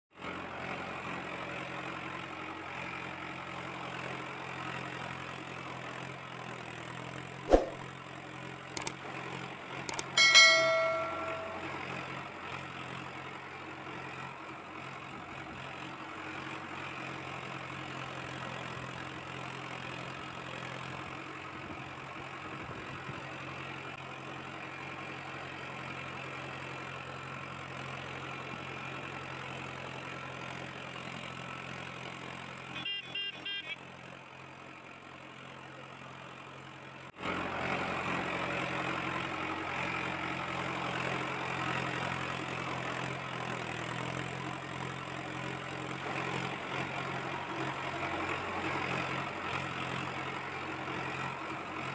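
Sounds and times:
sharp click: 0:07.5 - 0:07.8, 0:08.8 - 0:09.0, 0:09.9 - 0:11.6
bell-like ding: 0:09.9 - 0:11.8.

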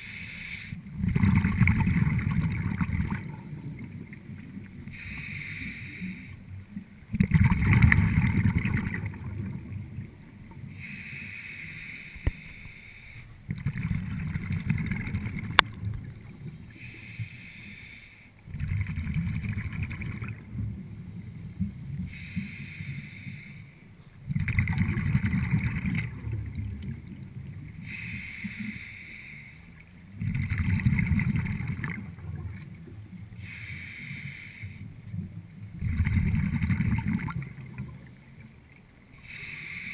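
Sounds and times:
hissing regulator inhalations: 0:00.0 - 0:00.9, 0:04.8 - 0:06.4, 0:10.7 - 0:13.4, 0:16.2 - 0:18.4, 0:20.9 - 0:23.9, 0:27.8 - 0:29.8, 0:33.3 - 0:34.9, 0:37.6 - 0:39.9
exhaled bubbles rumbling: 0:00.9 - 0:04.9, 0:07.0 - 0:10.8, 0:13.4 - 0:16.5, 0:18.5 - 0:22.0, 0:24.2 - 0:27.9, 0:30.0 - 0:33.3, 0:34.9 - 0:38.2.

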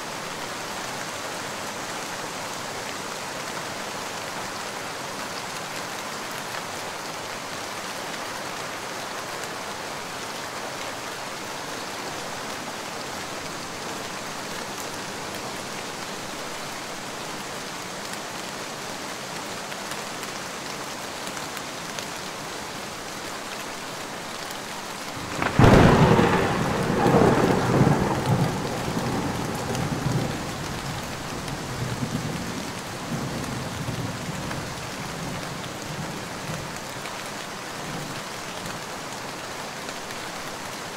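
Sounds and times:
steady light rain: 0:00.0 - 0:40.9
thunder clap rolling: 0:25.4 - 0:30.2.

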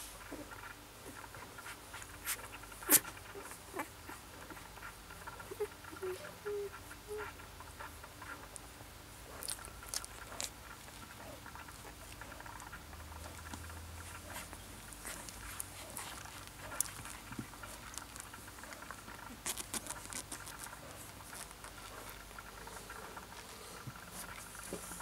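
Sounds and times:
puppies squeaking: 0:02.2 - 0:08.4.

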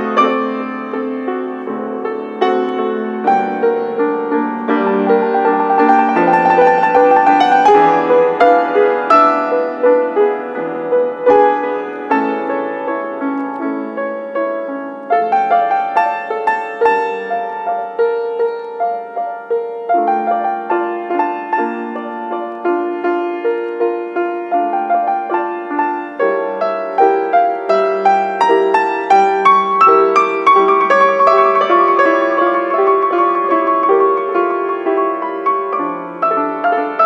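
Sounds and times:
grand piano played four hands: 0:00.0 - 0:37.0.

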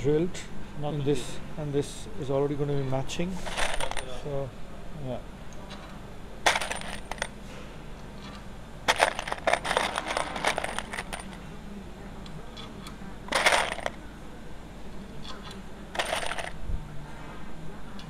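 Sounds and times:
metal parts clinking and rattling: 0:03.4 - 0:04.2, 0:06.4 - 0:07.4, 0:08.9 - 0:11.4, 0:13.3 - 0:14.0, 0:15.9 - 0:16.6.

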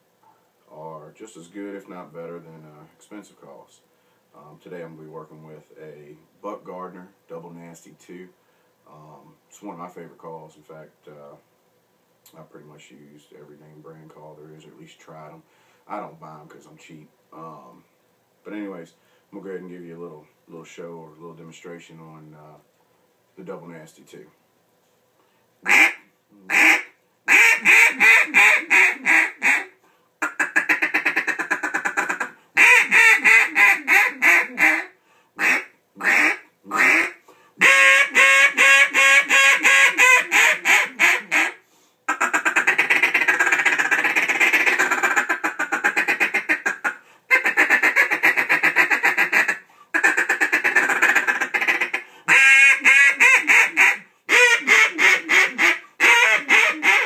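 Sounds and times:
breaths: 0:03.8 - 0:04.4, 0:08.4 - 0:08.8, 0:15.4 - 0:15.9, 0:19.0 - 0:19.4, 0:24.8 - 0:25.6, 0:29.8 - 0:30.2, 0:35.0 - 0:35.4, 0:37.2 - 0:37.6, 0:41.6 - 0:42.1, 0:47.0 - 0:47.3, 0:49.6 - 0:50.0, 0:52.0 - 0:52.3
duck call quacks: 0:25.6 - 0:57.0.

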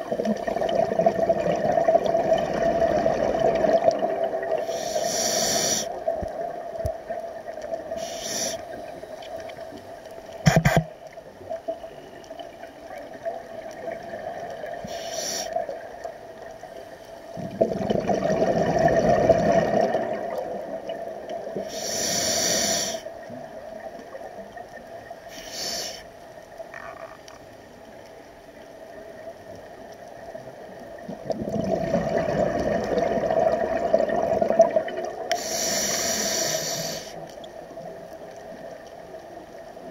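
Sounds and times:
regulator hissing inhalations: 0:04.6 - 0:06.0, 0:07.9 - 0:09.3, 0:14.8 - 0:15.7, 0:21.6 - 0:23.1, 0:25.3 - 0:26.1, 0:35.3 - 0:37.3
sharp knock: 0:10.4 - 0:10.9
bubbling exhalations: 0:17.4 - 0:20.4, 0:31.2 - 0:35.2.

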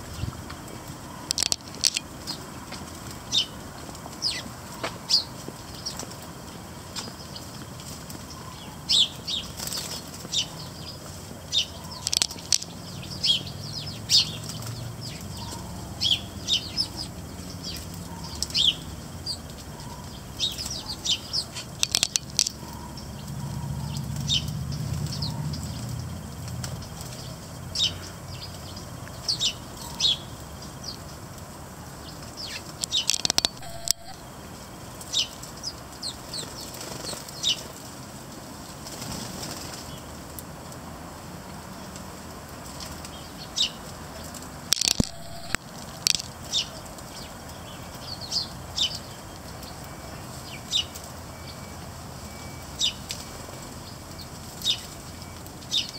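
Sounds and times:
sparrows chirping: 0:00.0 - 0:38.0, 0:42.6 - 0:55.9
wings fluttering: 0:09.4 - 0:12.9, 0:20.5 - 0:27.6, 0:44.3 - 0:46.6.

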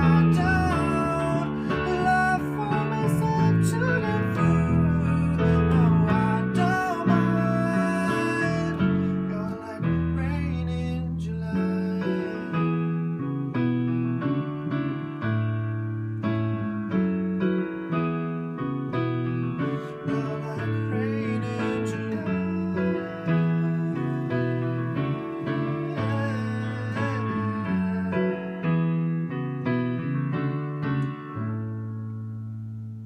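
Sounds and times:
person singing: 0:00.0 - 0:13.6, 0:19.5 - 0:29.0
digital piano chords: 0:00.0 - 0:33.0.

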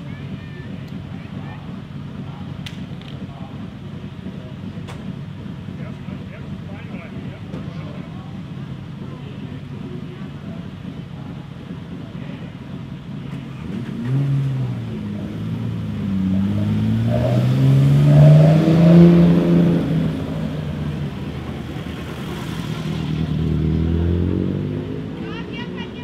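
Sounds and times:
rally car engine accelerating: 0:00.6 - 0:26.0
another engine rising: 0:13.0 - 0:26.0.

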